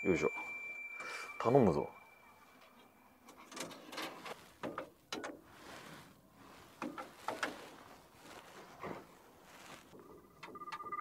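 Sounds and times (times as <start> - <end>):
faint high steady tone: 0.0 - 3.8
payphone clicks and clacks: 3.3 - 5.4, 10.4 - 11.0.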